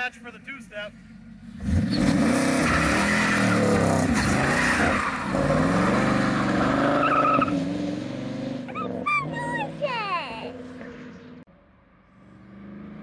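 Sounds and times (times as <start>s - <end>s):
car engine revving loudly: 1.4s - 11.2s
tires squealing: 1.6s - 11.4s.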